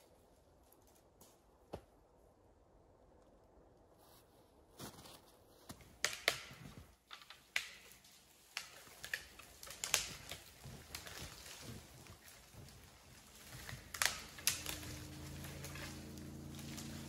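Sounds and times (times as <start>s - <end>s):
footsteps crunching through snow: 4.0s - 6.0s, 9.6s - 17.0s.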